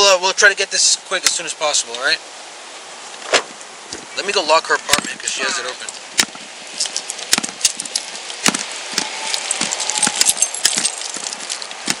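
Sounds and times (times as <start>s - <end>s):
keys jingling: 9.4s - 12.0s.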